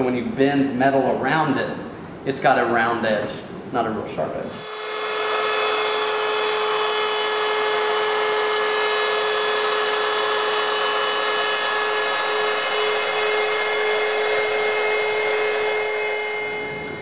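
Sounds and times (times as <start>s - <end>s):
wood router whining: 4.5s - 17.0s.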